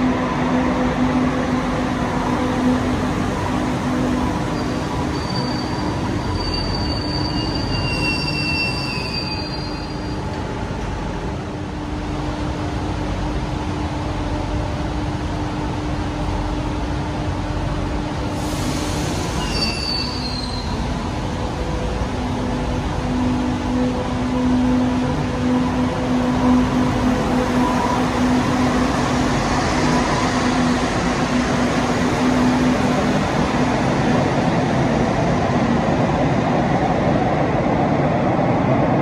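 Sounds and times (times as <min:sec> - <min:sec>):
metro train rumble and hum: 0:00.0 - 0:39.0
train wheels squealing: 0:04.5 - 0:10.3, 0:18.5 - 0:20.9.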